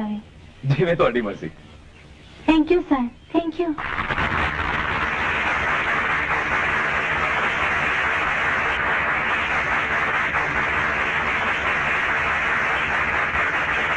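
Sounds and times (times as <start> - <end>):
crowd applauding: 3.8 - 13.9.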